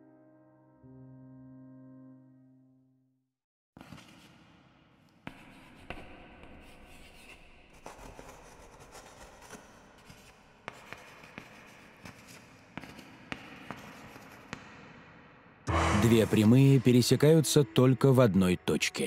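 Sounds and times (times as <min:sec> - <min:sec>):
chalk scratching on blackboard: 0:05.2 - 0:14.6.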